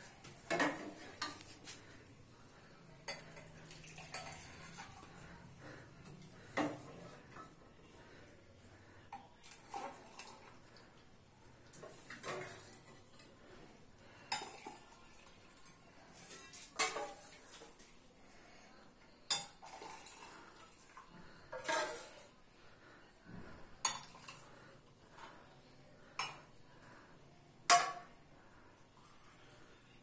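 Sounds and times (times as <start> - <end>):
liquid being ladled: 3.1 - 5.8, 9.4 - 10.7, 19.3 - 22.3.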